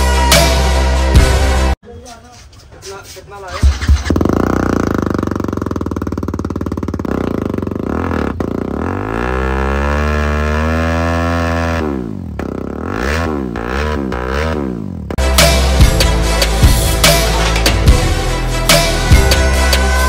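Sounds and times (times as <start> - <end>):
motorcycle engine revving: 3.5 - 15.2.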